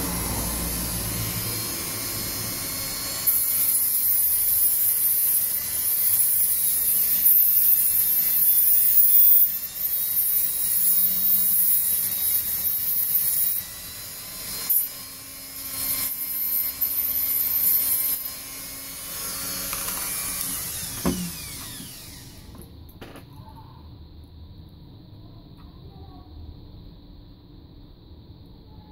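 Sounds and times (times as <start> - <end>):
rotary tool grinding metal: 0.0 - 22.6
tool set down thump: 21.0 - 21.3.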